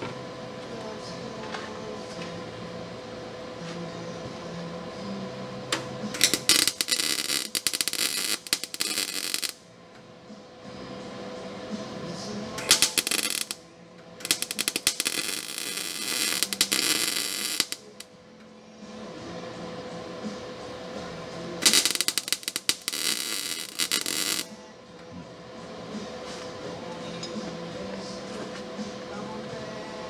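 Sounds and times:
electric welding arc crackling: 6.2 - 9.6, 12.6 - 13.6, 14.2 - 18.0, 21.6 - 24.5.

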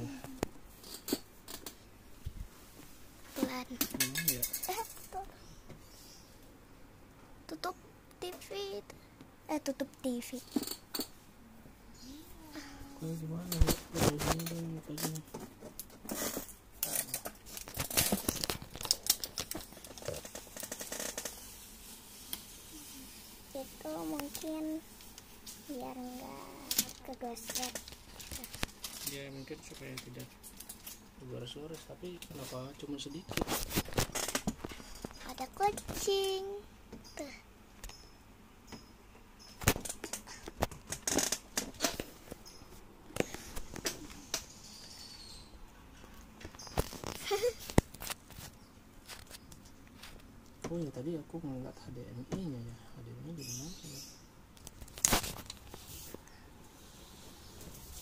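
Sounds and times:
plastic sheet crinkling: 16.0 - 30.0, 54.7 - 56.2.

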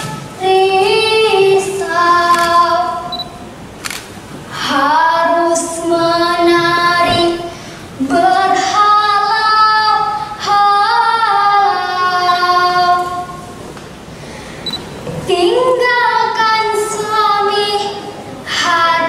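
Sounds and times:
girl singing: 0.0 - 3.2, 4.5 - 13.4, 15.2 - 19.0
breaths: 7.5 - 7.9, 14.1 - 14.9.

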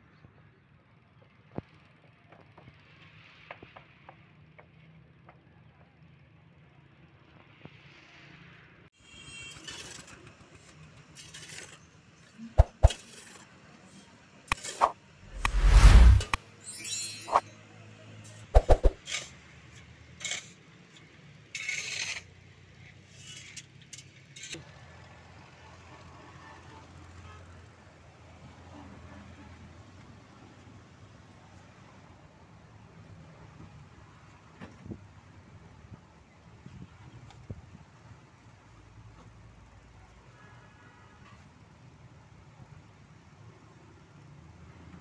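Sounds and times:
shovel scraping sand: 12.6 - 13.4, 14.5 - 17.5, 18.6 - 19.3.

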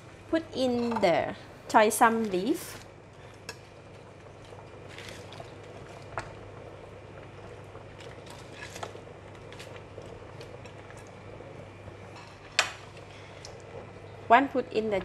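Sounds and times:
soup bubbling in a pot: 0.0 - 15.0.

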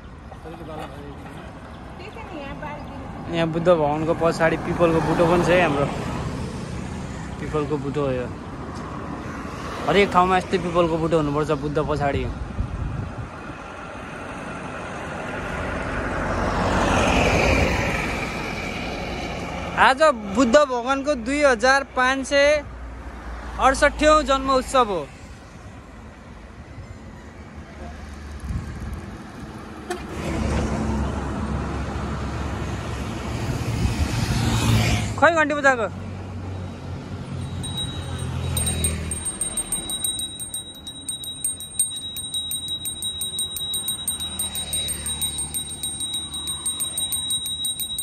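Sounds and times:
highway traffic noise: 0.0 - 48.0
vehicle passing by: 2.2 - 7.9, 30.2 - 35.2, 36.1 - 48.0.

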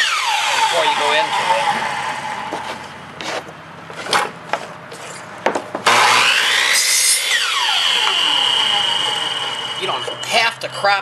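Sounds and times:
miter saw motor whine: 0.0 - 3.0, 5.9 - 10.7
saw blade cutting wood: 0.0 - 10.6
wood being handled knocks: 3.2 - 5.9.

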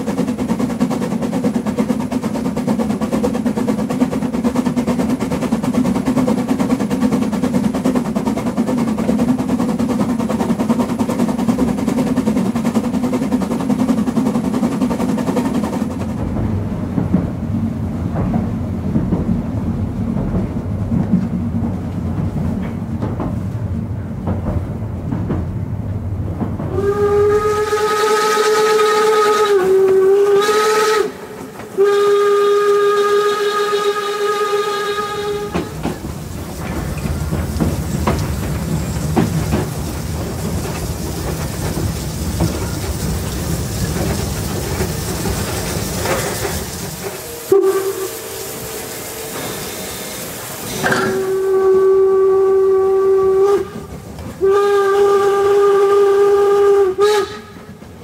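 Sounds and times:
steam train rumbling: 0.0 - 58.0
clicks from rail joints: 20.1 - 26.8
steam whistle blast: 26.7 - 35.8, 47.0 - 57.7.

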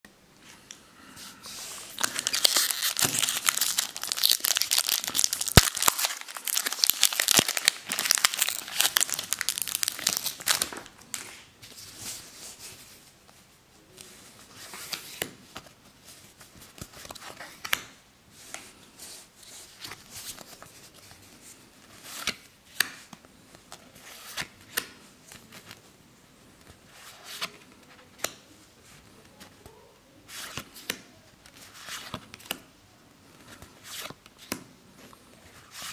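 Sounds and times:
foil wrapper crinkling and tearing: 1.9 - 10.9.

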